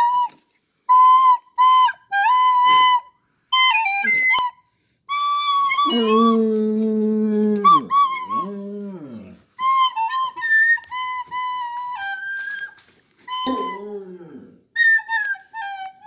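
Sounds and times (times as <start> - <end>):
toy pipe playing high notes: 0.0 - 6.4, 7.5 - 8.5, 9.6 - 14.0, 14.7 - 16.0
dog howling: 5.8 - 9.6, 13.4 - 14.6.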